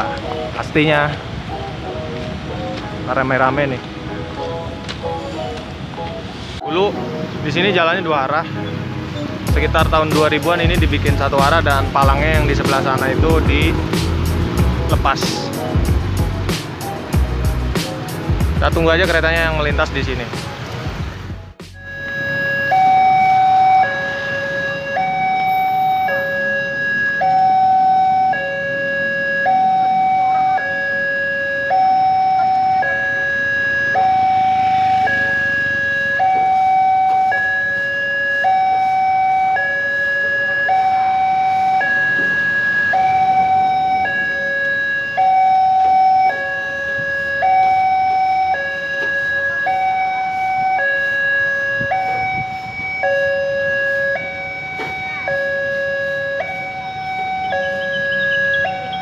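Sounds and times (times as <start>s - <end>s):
two-tone crossing alarm: 21.6s - 59.0s.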